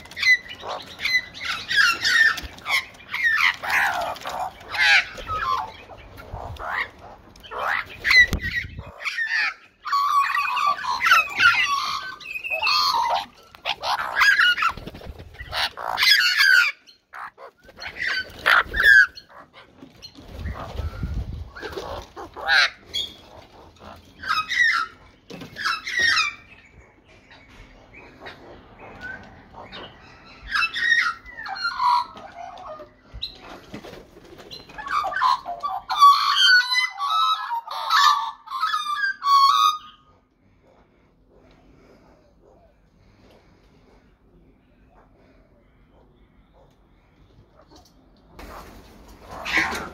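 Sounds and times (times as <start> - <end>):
magpies calling and squawking: 0.0 - 49.9.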